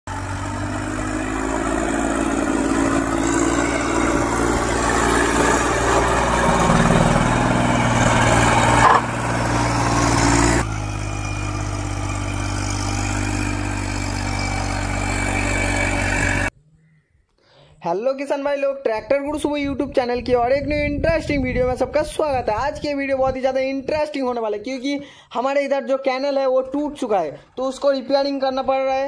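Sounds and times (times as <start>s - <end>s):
tractor diesel engine under load: 0.0s - 16.5s.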